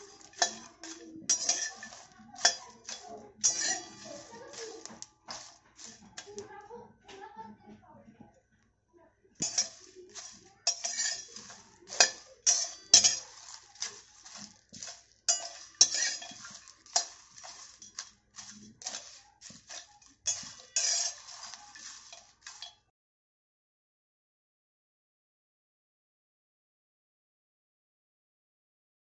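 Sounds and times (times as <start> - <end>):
metal spatula scraping steel pan: 0.0 - 6.5, 9.4 - 22.8.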